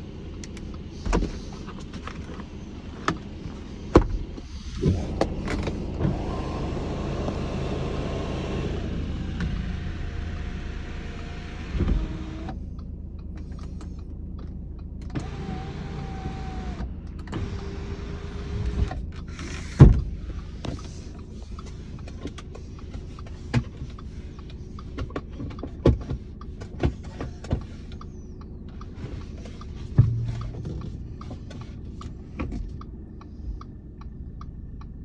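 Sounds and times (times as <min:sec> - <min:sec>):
low steady rumble: 0:00.0 - 0:35.0
sunroof motor whirring: 0:04.7 - 0:12.5, 0:15.2 - 0:18.8.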